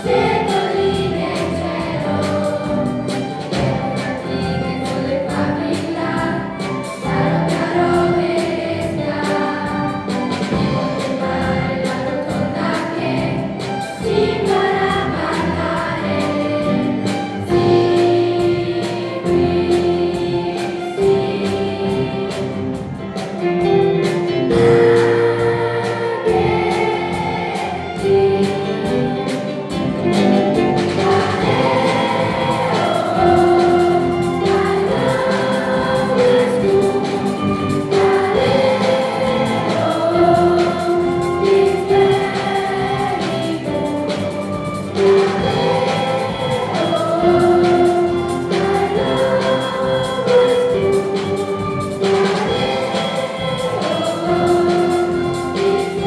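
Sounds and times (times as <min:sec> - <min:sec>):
children's choir singing: 0:00.0 - 0:56.0
orchestra of violins guitars drums: 0:00.0 - 0:56.0.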